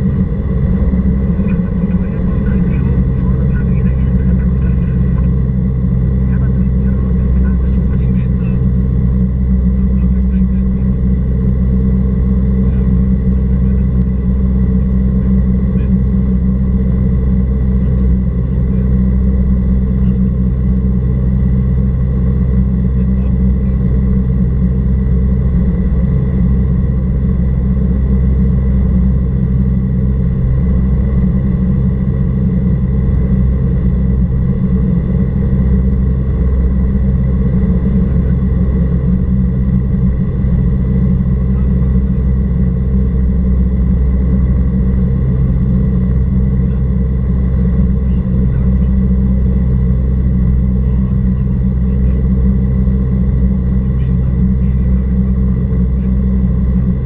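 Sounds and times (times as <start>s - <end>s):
light aircraft engine drone: 0.0s - 57.0s.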